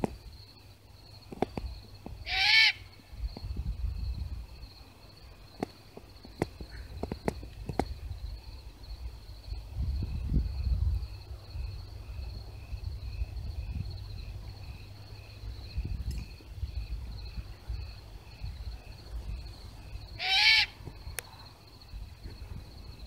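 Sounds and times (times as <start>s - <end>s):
crickets chirping: 0.0s - 23.0s
owl harsh call: 2.2s - 3.0s, 20.1s - 20.8s
low microphone rumble: 7.5s - 14.6s.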